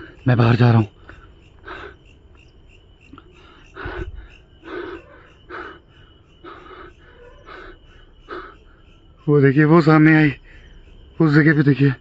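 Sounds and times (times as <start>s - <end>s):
insect trill: 0.0s - 12.0s
man panting heavily: 1.0s - 2.2s, 3.2s - 9.0s.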